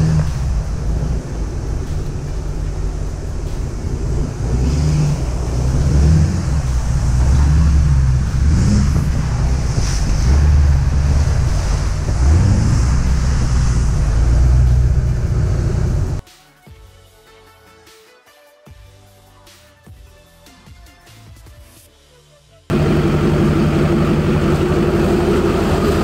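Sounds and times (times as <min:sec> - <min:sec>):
truck engine running: 0:00.0 - 0:16.2, 0:22.7 - 0:26.0
tyres splashing through puddles: 0:00.0 - 0:16.2
wind noise on microphone: 0:00.0 - 0:16.2.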